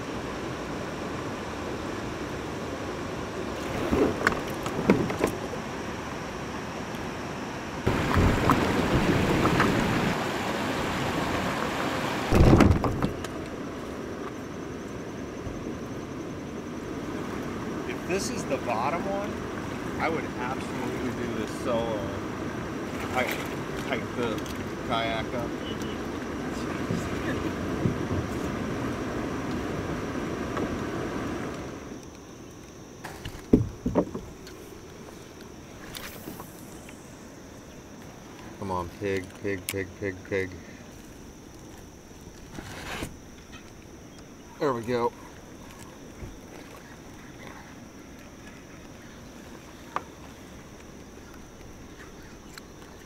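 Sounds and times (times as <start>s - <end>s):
river rushing and splashing: 0.0s - 14.1s
low rumbling wind: 0.0s - 32.4s
water noise: 0.0s - 53.0s
dull thumps on kayak hull: 12.3s - 13.2s, 33.0s - 34.4s
kayak scraping on rocks: 42.2s - 43.2s.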